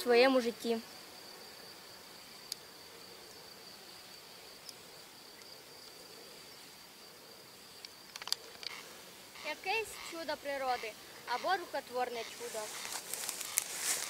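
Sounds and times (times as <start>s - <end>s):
insect high-pitched song: 0.0s - 14.0s
small clicks: 7.8s - 8.8s.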